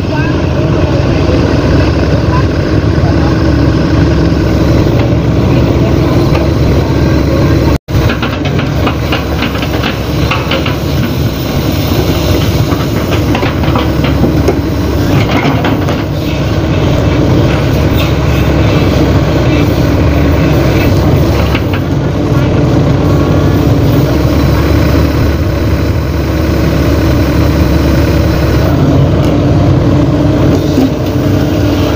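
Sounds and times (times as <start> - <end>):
diesel engine running: 0.0 - 31.9
metallic clanking and rattling: 8.0 - 16.2.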